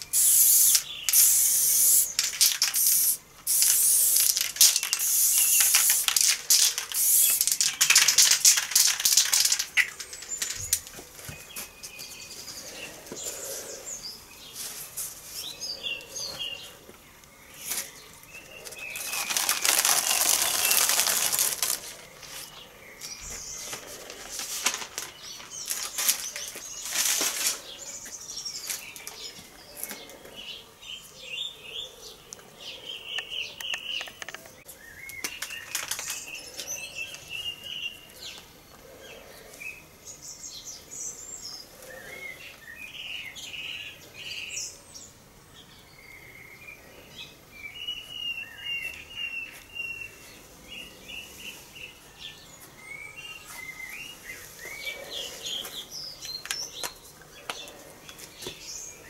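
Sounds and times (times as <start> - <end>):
spray-paint can hissing: 0.1 - 9.9
paper rustling: 2.2 - 11.8, 18.6 - 22.6, 23.6 - 27.6, 35.3 - 36.3.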